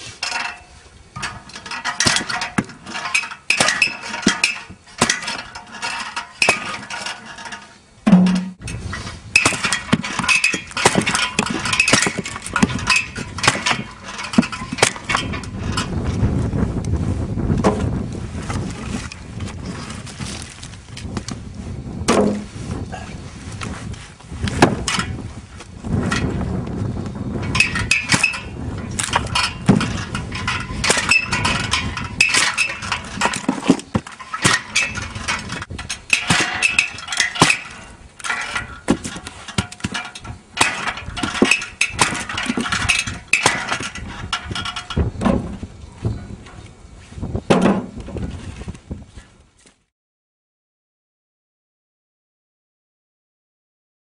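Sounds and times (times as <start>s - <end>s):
metallic clank: 0.2s - 16.0s, 27.4s - 45.6s
log splitter chopping wood: 1.2s - 5.8s, 6.4s - 7.0s, 9.3s - 15.3s, 22.0s - 22.5s, 24.6s - 24.9s, 27.6s - 44.2s, 47.5s - 48.1s
wind rumble on microphone: 8.0s - 49.8s.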